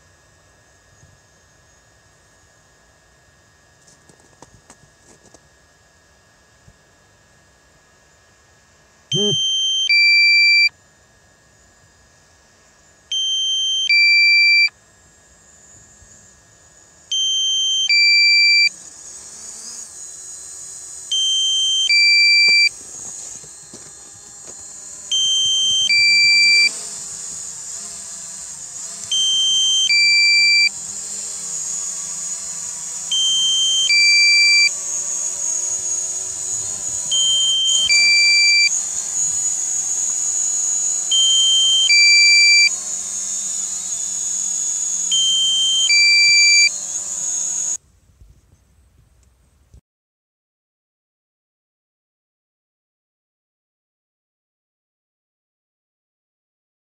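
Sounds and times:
two-note electronic warning beep: 9.1s - 10.7s, 13.1s - 14.7s, 17.1s - 18.7s, 21.1s - 22.7s, 25.1s - 26.8s, 29.1s - 30.7s, 33.1s - 34.8s, 37.1s - 38.8s, 41.1s - 42.8s, 45.1s - 46.8s.

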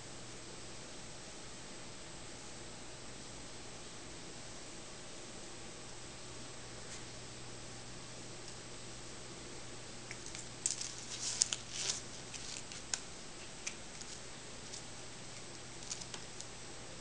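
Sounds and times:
cat pawing at ribbon rustling: 10.1s - 16.5s.

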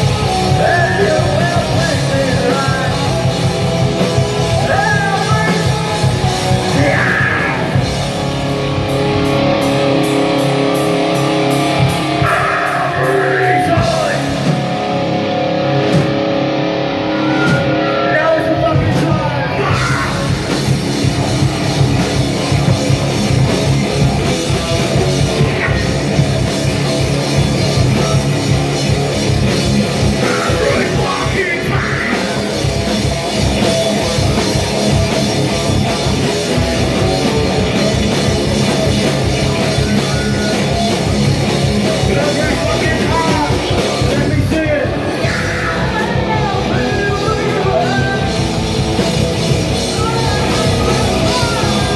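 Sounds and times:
bass guitar: 0.0s - 51.9s
distorted electric guitars: 0.0s - 51.9s
drum kit: 0.0s - 51.9s
person singing into microphone: 30.2s - 32.4s.

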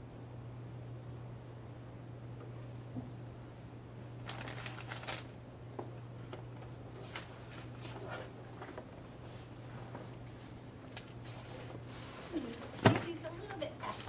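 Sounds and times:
steady low hum: 0.0s - 14.0s
faint clicks and rustles: 4.2s - 14.0s.

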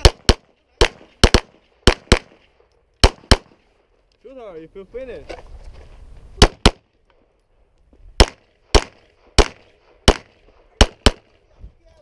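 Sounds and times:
pistol shots: 0.0s - 3.7s, 6.4s - 7.0s, 8.2s - 11.4s.

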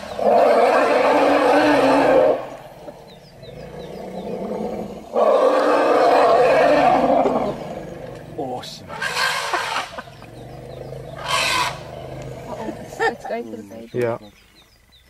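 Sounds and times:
drawn-out animal call: 6.2s - 13.8s.

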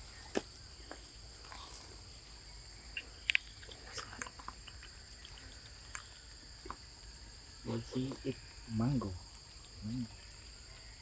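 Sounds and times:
insects chirring: 0.0s - 11.0s
monkey eating wet smacks: 3.0s - 6.8s.

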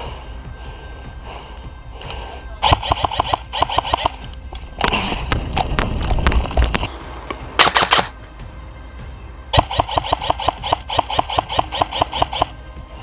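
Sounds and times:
airsoft rifle bursts of rapid clicks: 2.6s - 4.2s, 7.6s - 8.1s, 9.6s - 12.5s.

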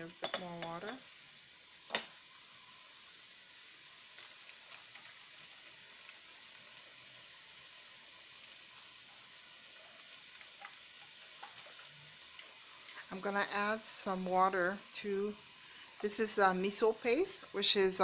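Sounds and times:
vegetables sizzling in oil: 0.0s - 18.0s
faint crackles: 1.8s - 13.6s.

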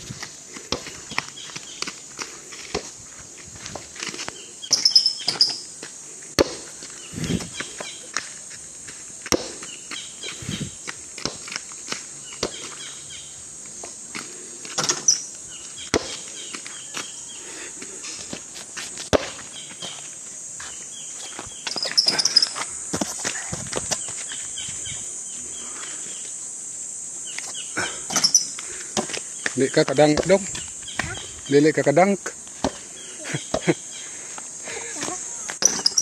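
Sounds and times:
basketball bouncing on dirt: 0.0s - 5.6s, 6.4s - 10.0s, 10.7s - 12.8s, 15.8s - 17.1s, 18.3s - 20.0s, 22.9s - 24.4s, 28.9s - 31.3s, 32.6s - 32.8s
high insect drone: 0.0s - 36.0s.

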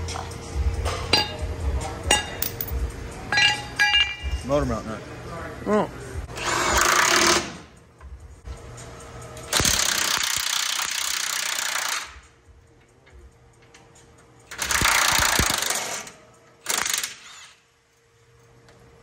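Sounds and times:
impact wrench hammering: 1.1s - 1.4s, 2.1s - 4.4s.

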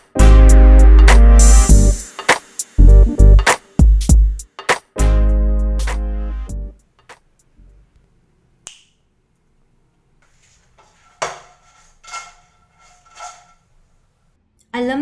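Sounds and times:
frying pan clanking: 10.8s - 13.7s.

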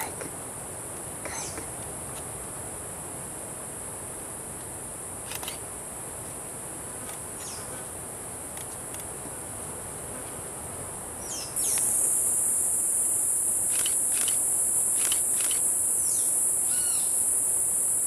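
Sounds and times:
insect chorus drone: 0.0s - 18.0s
short chirps and clicks: 15.0s - 15.6s.

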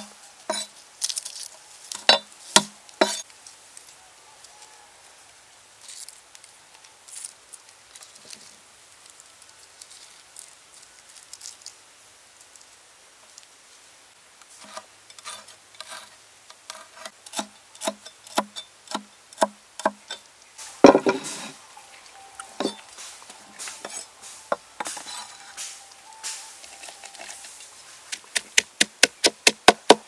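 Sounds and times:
cleaver chopping on wooden block: 28.1s - 30.0s.

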